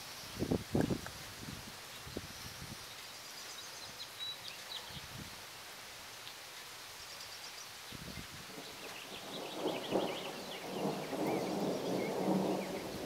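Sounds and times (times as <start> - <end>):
outdoor background hiss: 0.0 - 13.0
birds chirping: 7.0 - 13.0.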